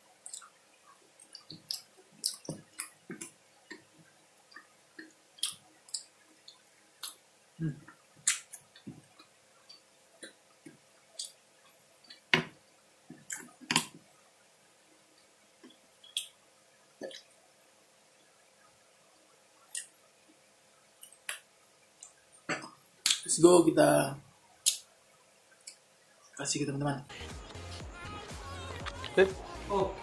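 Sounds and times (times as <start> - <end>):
man chewing with wet smacks: 0.2 - 11.4, 15.2 - 16.4, 17.0 - 17.4, 19.6 - 20.0.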